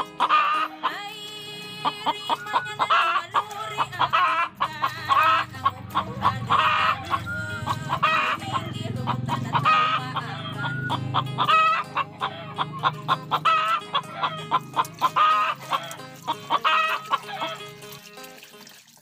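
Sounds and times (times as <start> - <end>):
chickens clucking: 0.0 - 18.0.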